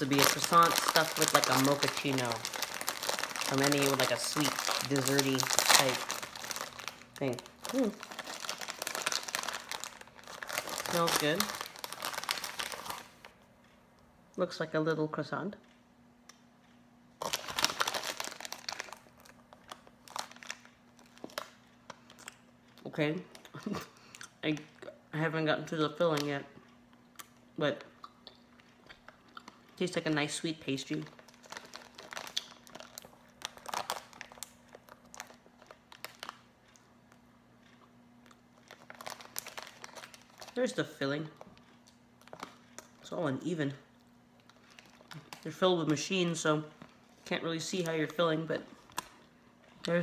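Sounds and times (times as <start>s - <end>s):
plastic wrapper crinkling: 0.0s - 13.4s, 17.2s - 23.8s, 28.9s - 36.8s, 38.2s - 50.0s.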